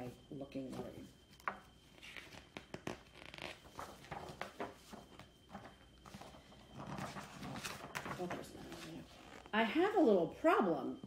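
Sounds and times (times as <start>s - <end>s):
paper pages rustling: 0.7s - 9.5s.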